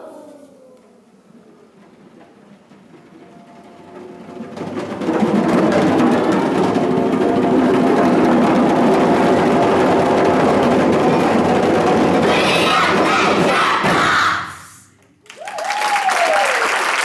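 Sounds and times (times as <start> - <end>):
djembes drumming: 1.8 - 14.7.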